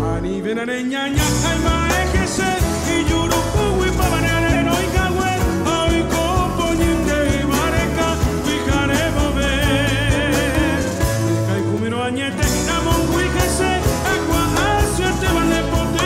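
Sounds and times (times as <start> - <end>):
man singing: 0.0 - 16.0
live band playing: 1.1 - 16.0.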